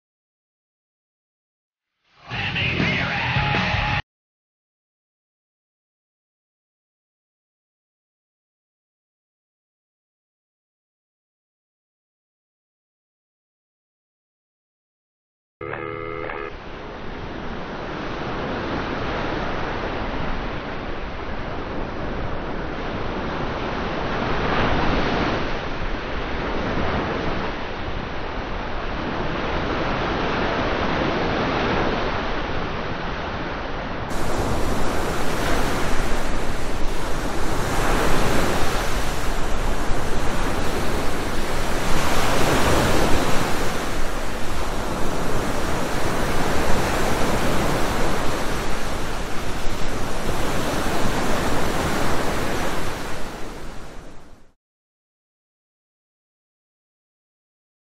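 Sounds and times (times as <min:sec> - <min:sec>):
ocean waves breaking: 0:15.7 - 0:54.6.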